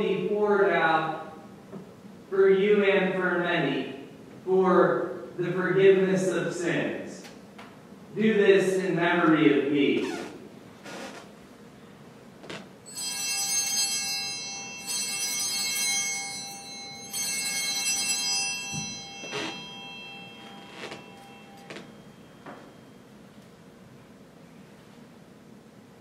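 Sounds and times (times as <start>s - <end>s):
altar bells ringing: 12.8s - 23.4s.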